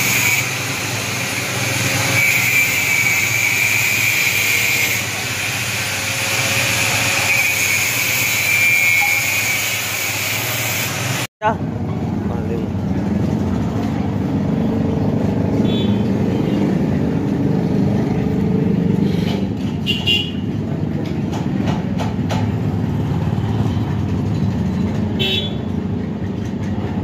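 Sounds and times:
high-pitched horn toots: 0.0 - 0.8, 1.8 - 5.3, 6.0 - 10.4
rumble of vehicle engines: 0.0 - 7.3, 11.0 - 27.0.

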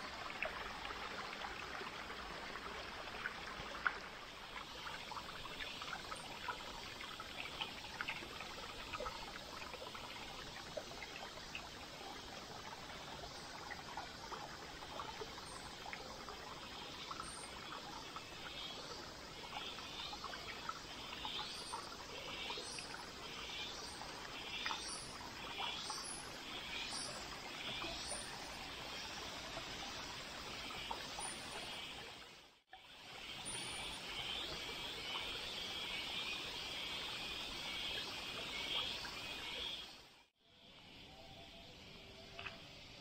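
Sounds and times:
stream trickling over rocks: 0.0 - 40.2, 41.9 - 43.0.

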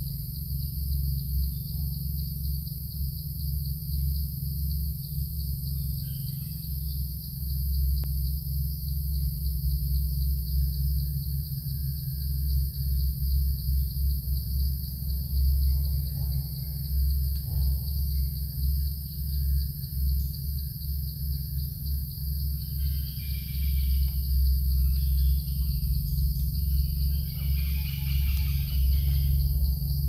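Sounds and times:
insects droning: 0.0 - 30.0
low rumble: 7.9 - 30.0.

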